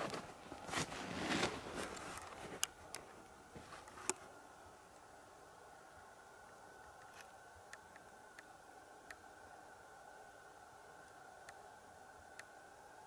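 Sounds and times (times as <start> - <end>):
footsteps crunching through snow: 0.0 - 2.6.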